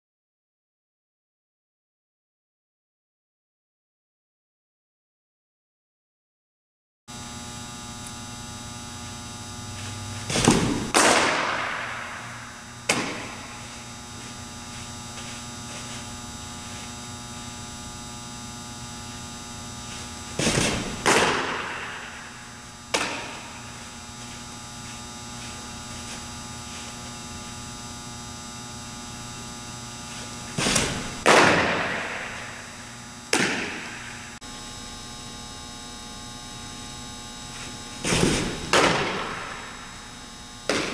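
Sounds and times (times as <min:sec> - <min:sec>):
electrical hum: 0:07.1 - 0:40.9
softball smacking target: 0:10.2 - 0:13.6, 0:20.4 - 0:22.3, 0:22.9 - 0:23.7, 0:30.6 - 0:32.6, 0:33.3 - 0:34.2.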